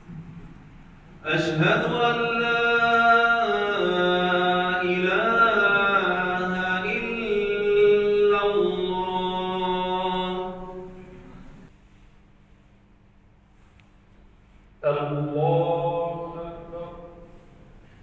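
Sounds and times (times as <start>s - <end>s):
man chanting into a microphone: 1.2s - 11.2s, 14.8s - 17.5s.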